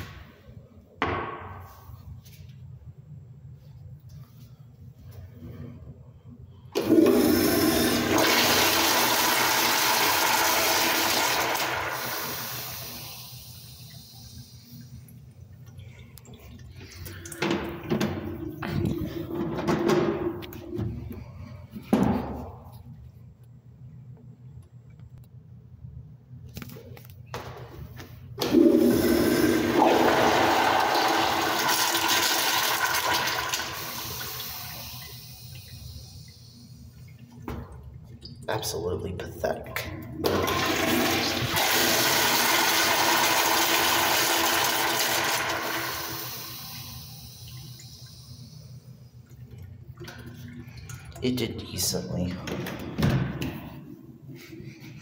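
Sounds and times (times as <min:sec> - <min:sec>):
toilet flushing water rush: 0:06.8 - 0:15.2, 0:28.4 - 0:52.0.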